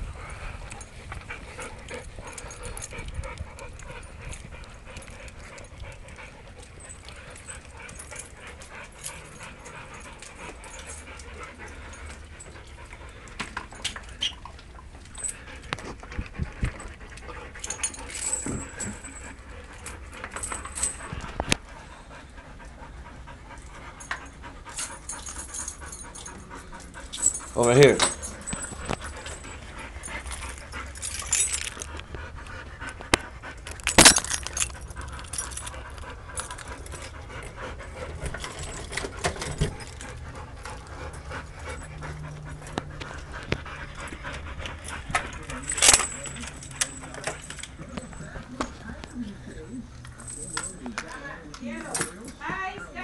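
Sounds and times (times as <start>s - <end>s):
dogs panting: 0.0s - 53.0s.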